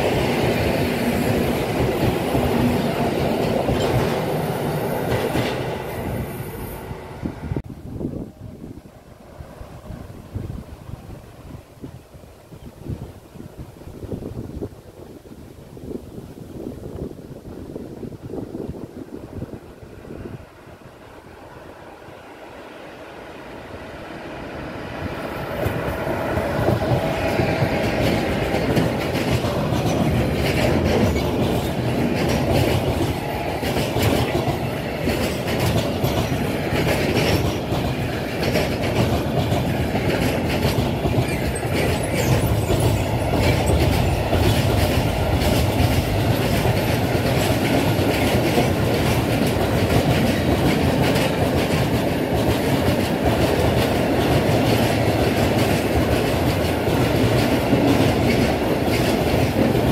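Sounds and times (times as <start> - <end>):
freight train rumbling past: 0.0 - 16.0, 16.6 - 59.9
wheels clattering over rails: 25.4 - 59.9.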